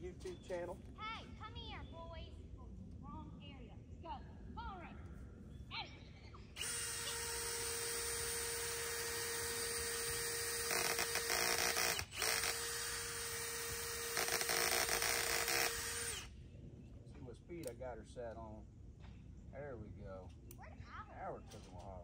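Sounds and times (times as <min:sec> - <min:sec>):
cordless drill boring into wood: 0:06.6 - 0:16.3.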